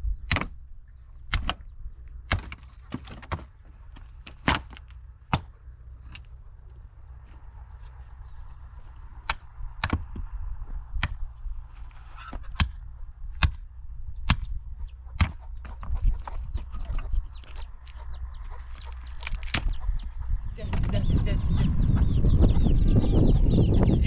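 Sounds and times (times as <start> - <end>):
hatchet chopping wood: 0.2 - 0.6, 1.3 - 1.7, 2.3 - 3.5, 4.3 - 5.5, 9.3 - 10.2, 11.0 - 11.2, 12.5 - 12.8, 13.4 - 13.7, 14.3 - 14.6, 15.2 - 15.9, 16.7 - 18.1, 18.7 - 19.8
chickens chirping: 14.0 - 24.0.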